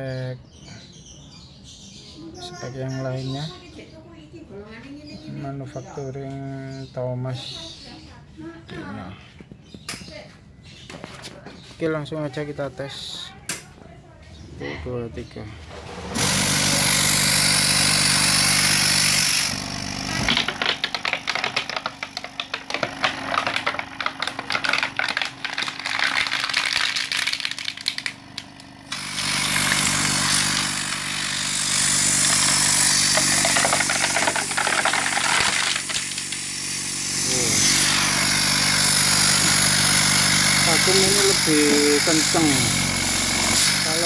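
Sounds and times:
vacuum pump humming: 15.3 - 44.0
plastic bag crinkling: 20.2 - 28.7, 32.2 - 36.4.

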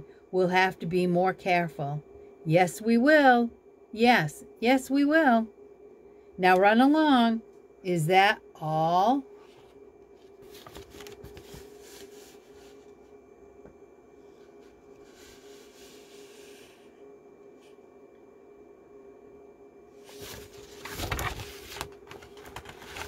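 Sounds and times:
book pages rustling: 9.4 - 13.1, 20.0 - 23.0.

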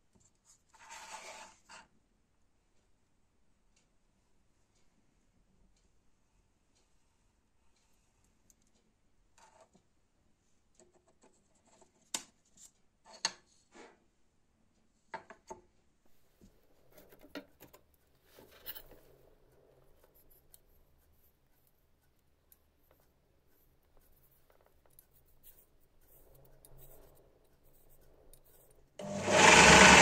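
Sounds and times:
pencil scratching on metal: 0.4 - 1.9, 16.8 - 30.0.

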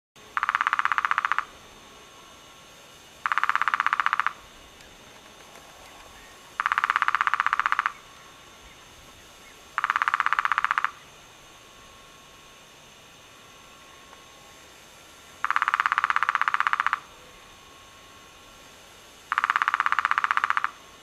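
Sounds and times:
woodpecker drumming: 0.3 - 1.5, 3.2 - 11.5, 15.2 - 17.1, 19.3 - 20.8.

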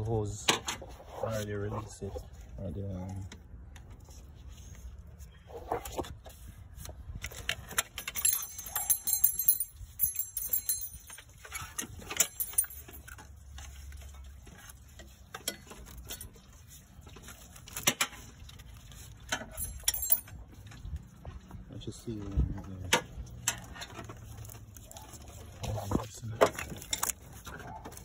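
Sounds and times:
metal parts clinking: 7.7 - 13.3, 19.3 - 20.4
metallic jingling: 7.9 - 13.4, 19.4 - 20.5.

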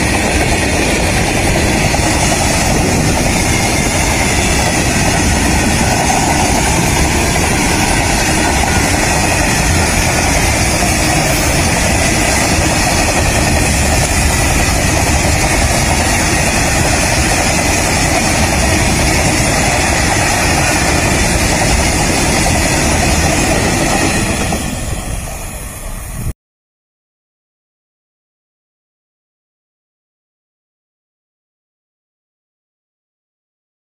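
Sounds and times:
freight wagons rumbling on rails: 0.0 - 26.3.

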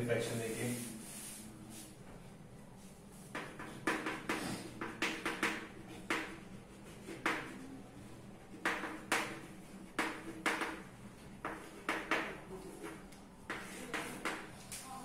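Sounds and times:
chalk scratching on a blackboard: 0.3 - 1.9, 5.2 - 7.6, 11.4 - 14.5.

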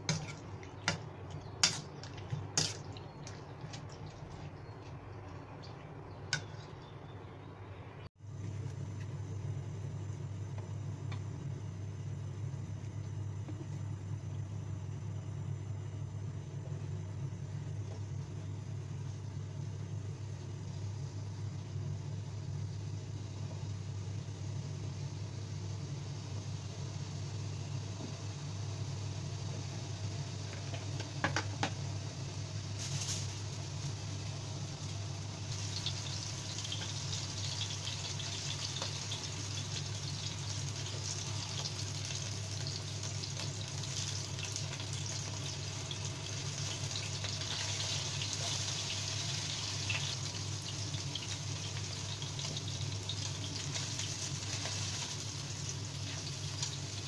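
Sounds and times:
low machine hum: 0.0 - 57.0
potatoes sizzling in hot oil: 24.0 - 57.0.

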